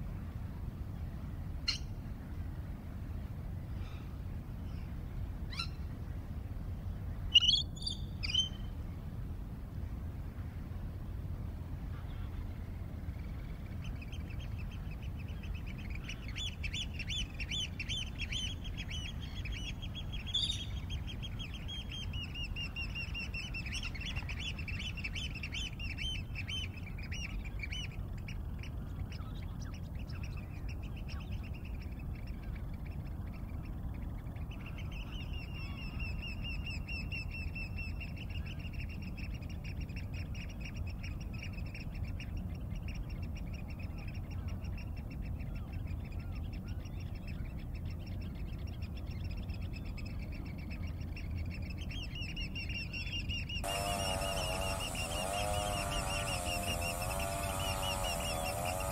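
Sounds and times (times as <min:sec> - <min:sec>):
steady low rumble: 0:00.0 - 0:25.5
birds calling in repeated high notes: 0:53.1 - 0:58.9.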